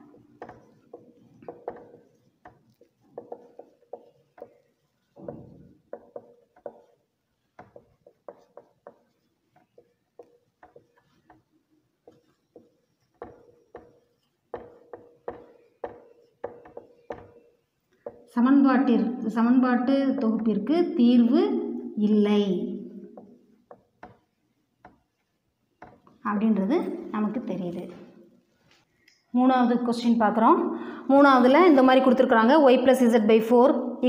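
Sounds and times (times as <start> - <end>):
marker pen writing on whiteboard: 0.0 - 19.2, 19.8 - 21.9, 22.7 - 28.9.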